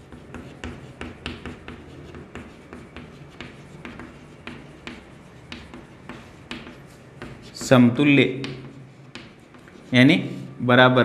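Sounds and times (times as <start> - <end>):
chalk tapping and scratching on blackboard: 0.0 - 10.6.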